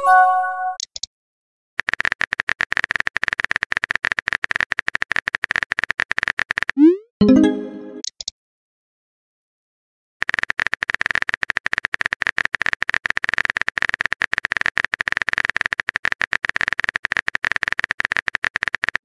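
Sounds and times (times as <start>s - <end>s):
phone keyboard typing clicks: 1.8s - 6.8s, 10.2s - 19.0s.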